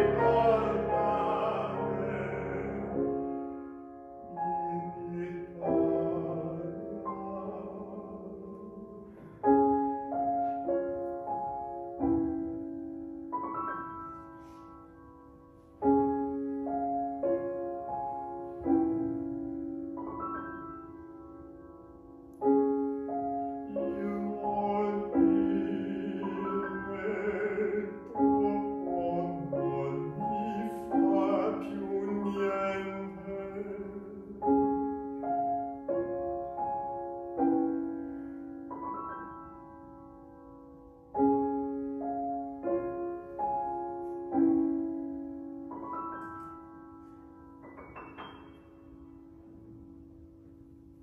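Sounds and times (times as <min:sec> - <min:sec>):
baritone singing: 0:00.0 - 0:03.4, 0:04.2 - 0:09.2, 0:23.5 - 0:34.9
grand piano: 0:00.0 - 0:51.0.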